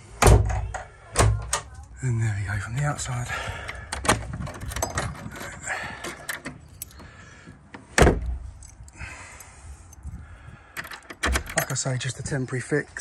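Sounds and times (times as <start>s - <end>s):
key and latch clicks: 3.6s - 7.1s, 10.8s - 11.8s
door shutting with a bang: 8.0s - 8.4s.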